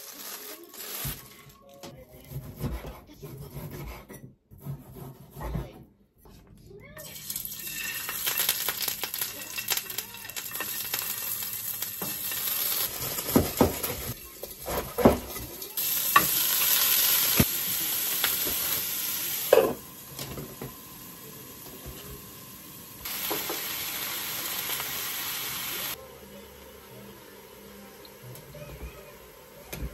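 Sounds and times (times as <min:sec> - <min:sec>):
food sizzling in a frying pan: 0:00.0 - 0:01.4, 0:07.0 - 0:29.9
knocks and clatter in a pan: 0:13.0 - 0:15.7.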